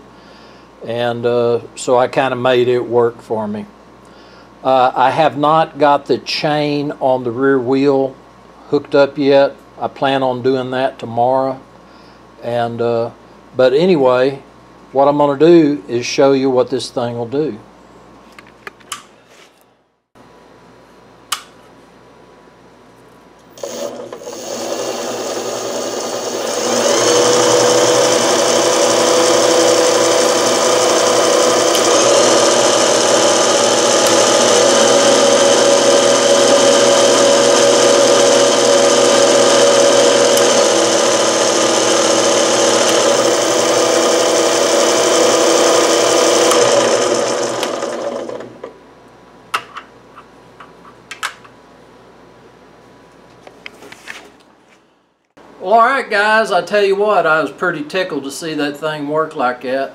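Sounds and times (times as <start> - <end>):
electric motor whining: 23.5 - 48.5.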